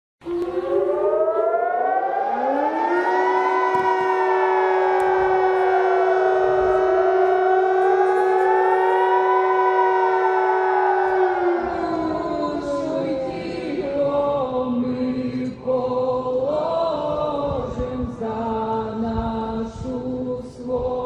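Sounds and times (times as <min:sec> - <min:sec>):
air-raid siren wailing: 0:00.2 - 0:14.9.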